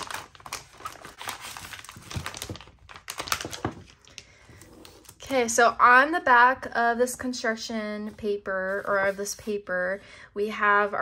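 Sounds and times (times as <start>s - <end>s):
foil bag crinkling: 0.0s - 5.2s.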